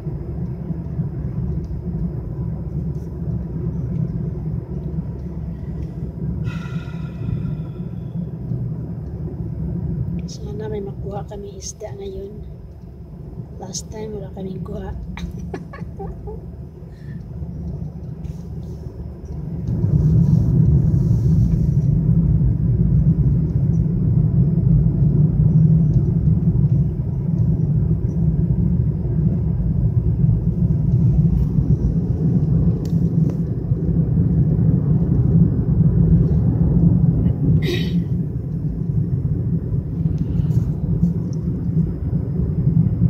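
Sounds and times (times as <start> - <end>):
car cabin road rumble: 0.0 - 43.0.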